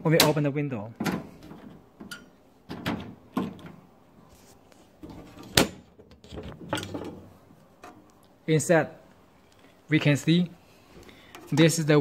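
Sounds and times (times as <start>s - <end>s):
panel latch clicks and knocks: 1.0s - 3.8s.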